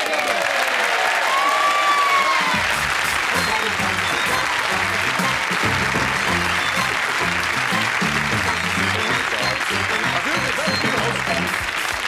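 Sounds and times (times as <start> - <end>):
audience applauding: 0.0 - 12.0
band music: 2.3 - 12.0
bass line: 2.5 - 11.8.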